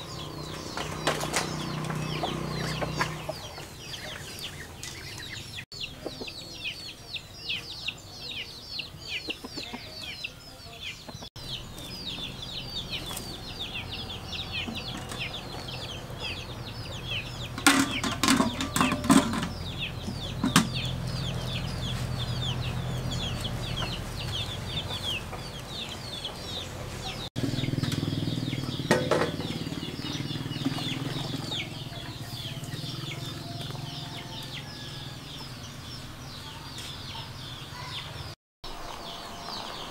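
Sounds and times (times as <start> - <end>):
chicks cheeping: 0.0 - 39.9
clattering knocks: 17.6 - 20.8, 28.9 - 29.6.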